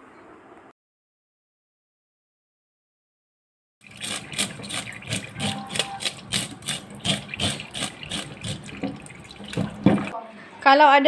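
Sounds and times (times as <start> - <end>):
blade scraping fish scales: 4.0 - 8.7.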